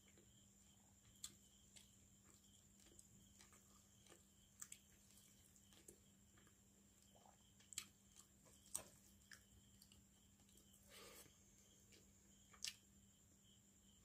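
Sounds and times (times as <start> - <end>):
wet chewing and eating: 0.0 - 11.1
faint electrical hum: 0.0 - 14.0.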